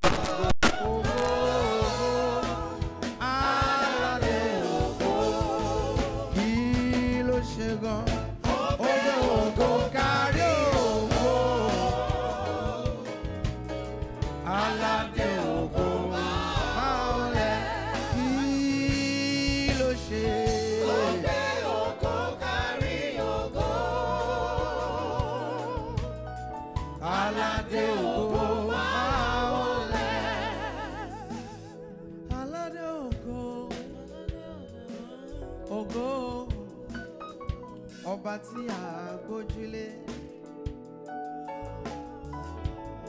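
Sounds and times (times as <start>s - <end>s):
choir singing: 0.0s - 6.8s, 8.4s - 13.5s, 14.3s - 26.2s, 27.0s - 31.9s, 33.6s - 38.2s
man singing with vibrato: 0.0s - 8.2s, 8.8s - 13.1s, 14.5s - 21.4s, 29.2s - 37.1s, 38.0s - 40.3s
low bass accompaniment: 0.0s - 8.6s, 9.2s - 34.6s.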